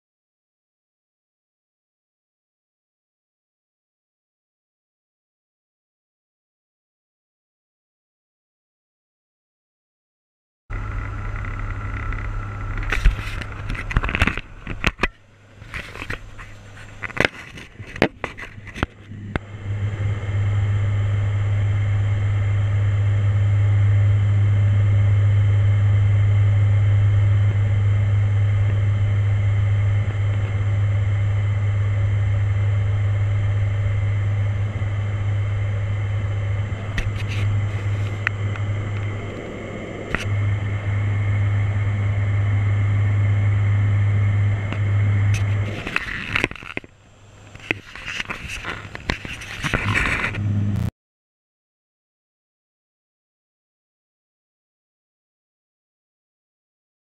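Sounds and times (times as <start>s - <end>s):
propeller engines droning: 10.7s - 50.9s.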